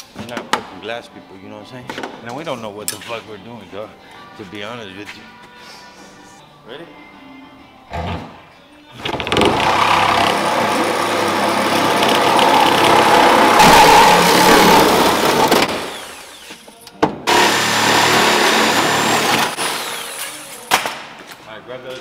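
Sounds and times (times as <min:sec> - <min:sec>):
reciprocating saw cutting glass: 0:09.5 - 0:16.7, 0:17.3 - 0:20.6.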